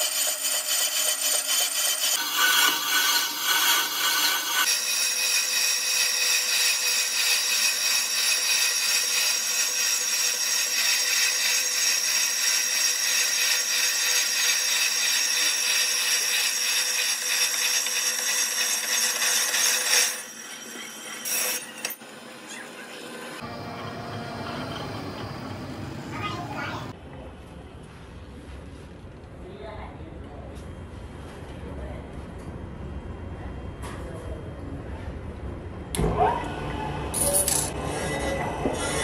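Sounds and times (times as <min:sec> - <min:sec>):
power tool grinding metal: 0:00.0 - 0:26.9.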